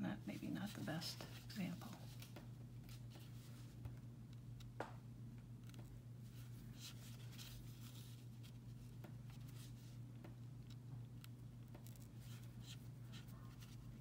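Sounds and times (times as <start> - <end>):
steady low hum: 0.0 - 14.0
needle and thread scratching yarn: 0.3 - 2.3, 6.2 - 10.0, 10.6 - 14.0.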